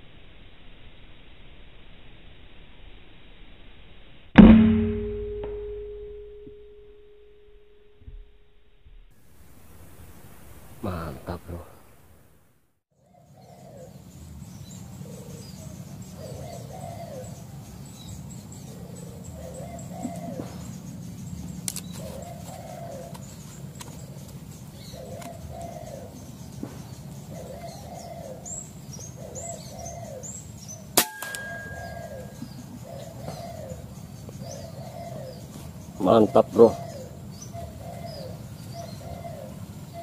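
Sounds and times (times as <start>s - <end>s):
short ringing tone: 4.5s - 8.0s, 31.2s - 32.4s
small birds chirping: 13.0s - 40.0s
dove cooing: 15.0s - 17.4s, 18.6s - 20.7s, 22.0s - 26.2s, 27.3s - 30.4s, 31.4s - 40.0s
rifle shot: 31.0s - 32.0s.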